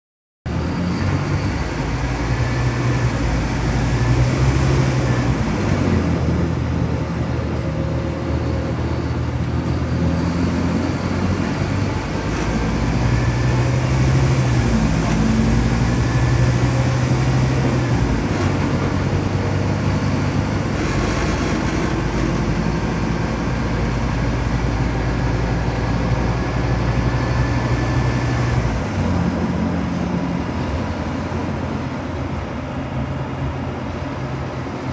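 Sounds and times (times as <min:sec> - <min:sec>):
gearbox whine: 0:00.5 - 0:25.1
bus engine accelerating: 0:00.5 - 0:34.9.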